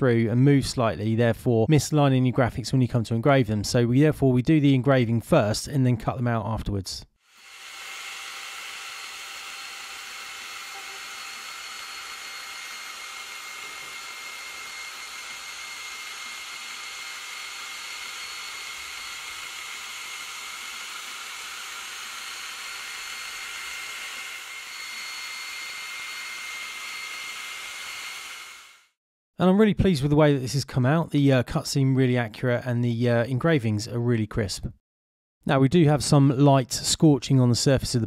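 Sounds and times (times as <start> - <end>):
laser engraver whirring and whining: 7.3 - 28.8.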